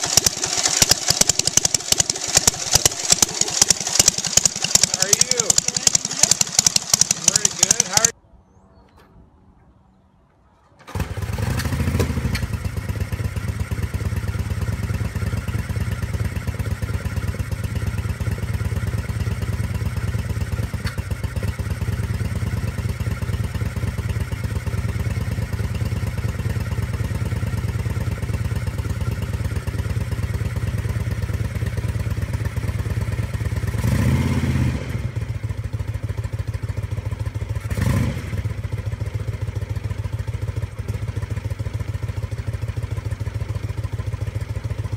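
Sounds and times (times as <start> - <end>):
motorcycle kick-start: 0.0 - 8.1, 10.8 - 33.9
motorcycle engine idling: 0.0 - 8.2, 10.9 - 34.2, 34.8 - 44.9.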